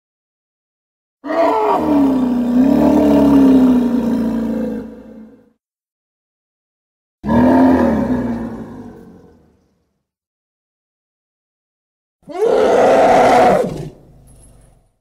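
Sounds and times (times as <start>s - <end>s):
elephant roar: 1.2s - 5.4s, 7.2s - 9.6s, 12.3s - 14.0s.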